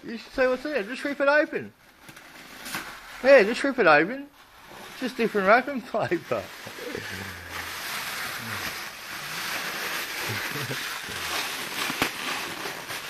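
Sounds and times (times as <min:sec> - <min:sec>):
wrapping paper tearing and crumpling: 0:00.0 - 0:13.0
paper snapping: 0:10.2 - 0:13.0.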